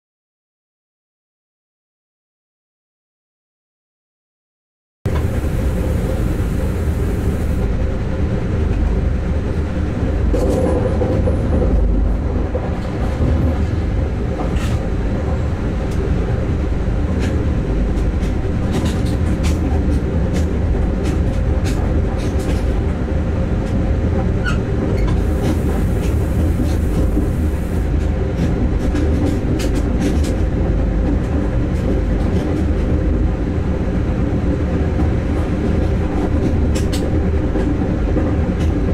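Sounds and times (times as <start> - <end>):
steady hum: 5.1 - 7.6
wheels rumbling on rail: 5.1 - 38.9.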